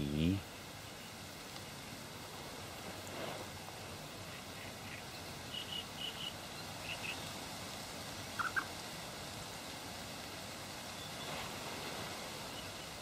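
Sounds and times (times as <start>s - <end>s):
steady outdoor hiss: 0.0s - 13.0s
bird calls: 4.1s - 7.4s, 8.3s - 8.8s, 10.9s - 13.0s.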